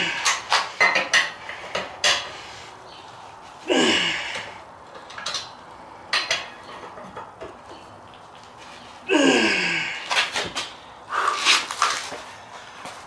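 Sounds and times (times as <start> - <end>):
lug wrench clinking on lug nuts: 5.0 - 7.8.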